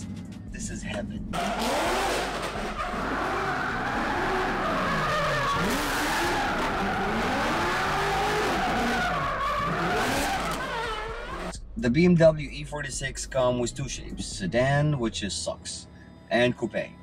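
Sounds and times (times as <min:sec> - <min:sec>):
car engine revving: 0:01.2 - 0:11.6
tyres squealing: 0:01.4 - 0:11.6.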